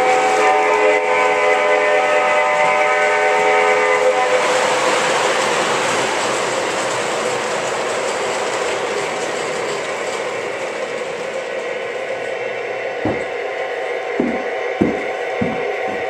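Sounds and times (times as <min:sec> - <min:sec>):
model train wheels clattering: 0:04.9 - 0:12.4.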